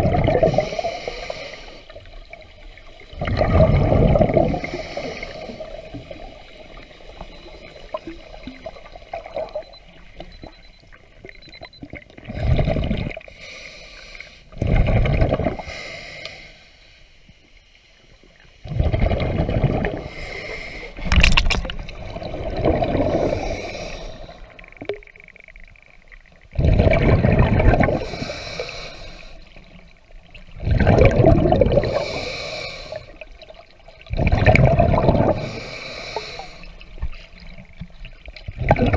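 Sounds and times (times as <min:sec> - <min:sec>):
diver breathing underwater: 0:00.0 - 0:02.0, 0:03.2 - 0:06.2, 0:12.4 - 0:17.2, 0:18.7 - 0:24.8, 0:26.6 - 0:29.8, 0:30.6 - 0:33.3, 0:34.4 - 0:37.4.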